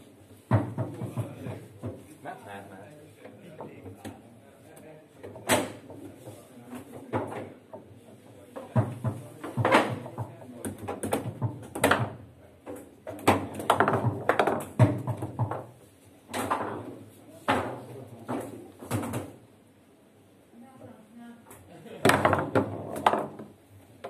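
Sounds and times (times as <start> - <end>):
foosball rods knocking: 0.5 - 2.1, 5.2 - 19.4, 22.0 - 23.6
foosball clacking against table: 8.6 - 19.4, 22.0 - 23.6.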